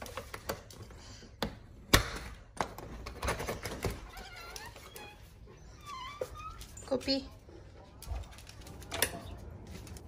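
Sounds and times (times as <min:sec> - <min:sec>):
dog whining: 0:04.2 - 0:06.8.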